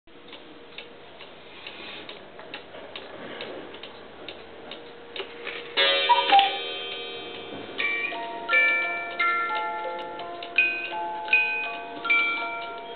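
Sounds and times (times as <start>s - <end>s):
clock ticking: 0.2s - 7.1s, 7.8s - 12.9s
cuckoo call with ringing tones: 5.8s - 6.7s
music-box notes: 5.8s - 12.9s.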